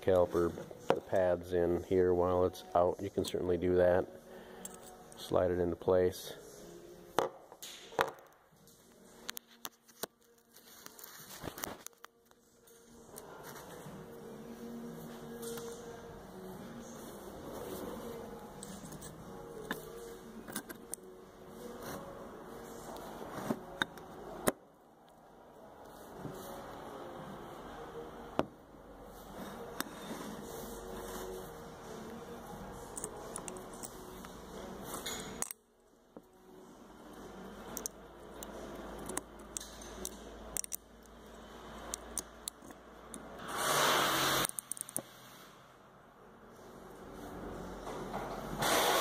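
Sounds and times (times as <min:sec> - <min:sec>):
small metallic clicks and ticks: 0:37.8 - 0:41.2, 0:44.4 - 0:45.1.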